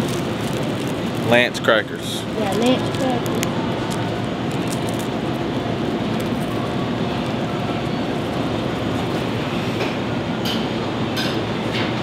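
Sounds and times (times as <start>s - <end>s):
plastic wrapper crinkling: 0.0s - 7.4s
background hum and hiss: 0.0s - 12.0s.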